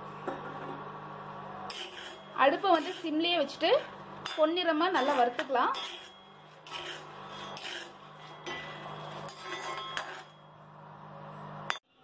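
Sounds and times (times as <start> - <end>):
ladle scraping iron pan: 1.7 - 10.4.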